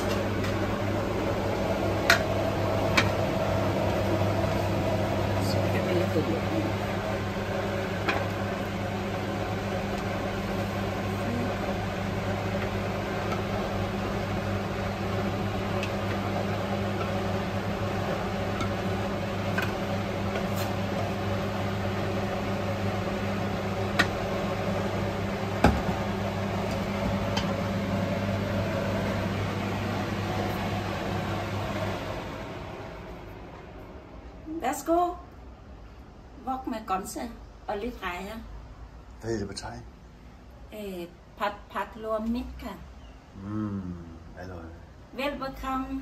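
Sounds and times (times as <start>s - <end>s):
kitchen fan humming: 0.0s - 46.0s
wooden spatula scraping wok: 18.0s - 21.2s.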